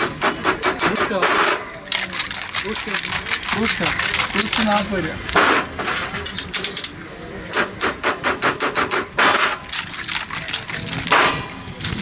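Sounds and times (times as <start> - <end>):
ice clinking in steel tumbler: 1.9 - 5.0.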